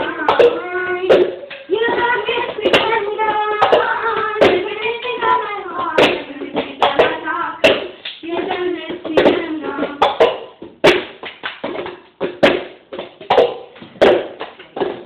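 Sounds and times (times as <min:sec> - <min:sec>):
cups tapping on stone countertop: 0:00.0 - 0:05.3, 0:06.0 - 0:15.0
girls singing: 0:00.0 - 0:10.5
hand claps: 0:01.2 - 0:12.7.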